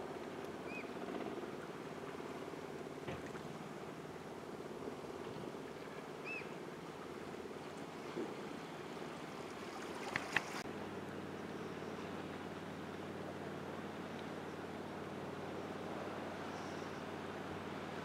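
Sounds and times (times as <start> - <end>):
sea water lapping on rocks: 9.2 - 10.6.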